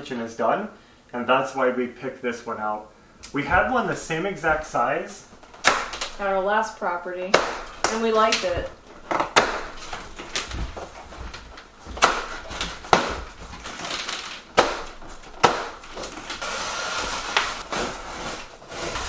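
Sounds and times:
packing straps snapping: 7.4s - 19.0s
cardboard scraping rustle: 8.2s - 19.0s.

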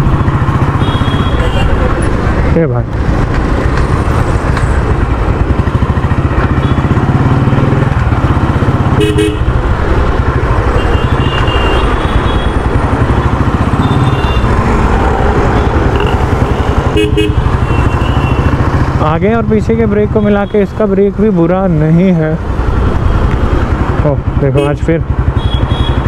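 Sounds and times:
vehicle horn toots: 0.8s - 1.8s, 9.0s - 9.5s, 10.8s - 12.6s, 16.9s - 18.5s, 24.5s - 26.0s
motorcycle engine pulsing: 3.0s - 21.8s.

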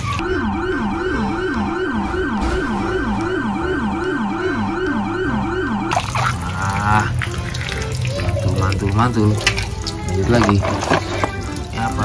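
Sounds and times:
police siren yelping: 0.0s - 7.2s.

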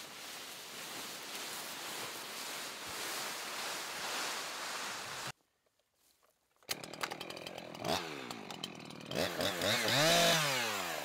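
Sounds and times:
branches rustling through grass: 0.0s - 6.5s.

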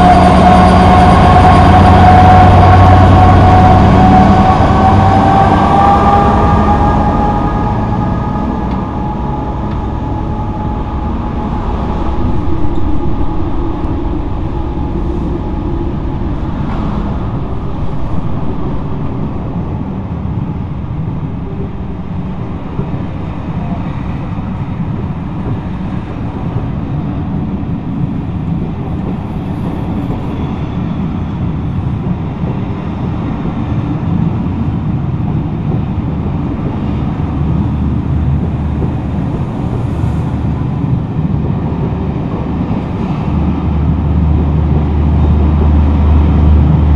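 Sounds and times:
train wheels rumbling on rails: 0.0s - 46.9s.

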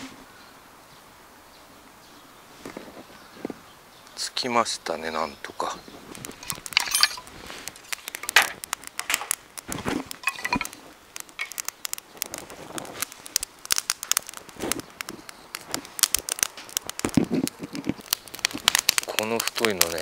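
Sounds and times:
kindling fire crackling and popping: 2.6s - 20.0s
sticks snapping and knocking: 6.1s - 20.0s.

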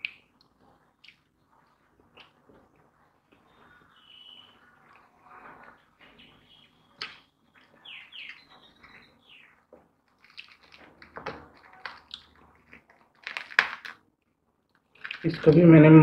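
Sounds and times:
faint bird chirps: 3.4s - 9.6s
fingers tearing fried fish: 10.1s - 14.0s, 14.7s - 15.6s.

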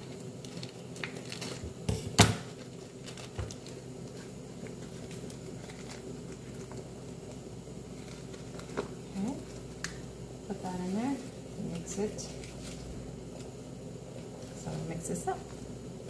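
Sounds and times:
steady low hum: 0.0s - 16.0s
packet crinkling and tearing: 0.1s - 1.8s, 2.6s - 6.9s.

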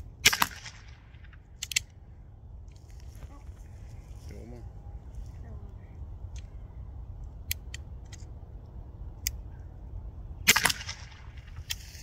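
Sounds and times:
launcher pops: 0.2s - 1.0s, 10.4s - 12.0s.

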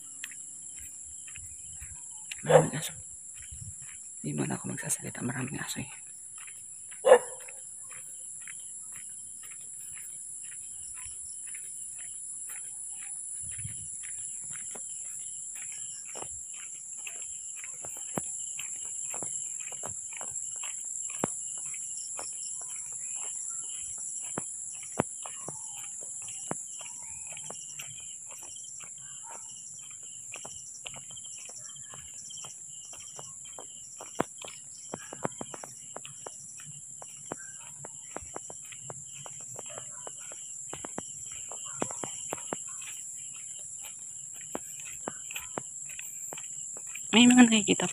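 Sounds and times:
footsteps walking: 0.0s - 47.9s
night insects chorus: 0.0s - 47.9s
dog barking: 2.3s - 3.0s, 7.0s - 7.6s, 29.2s - 29.5s, 39.6s - 40.4s.

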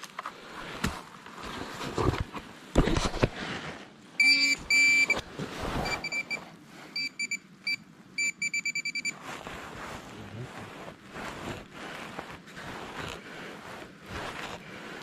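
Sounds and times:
soil rustling and scraping: 0.0s - 4.1s, 5.0s - 6.9s, 9.0s - 15.0s
pinpointer beeping: 4.2s - 5.2s, 5.8s - 6.4s, 7.0s - 9.2s.

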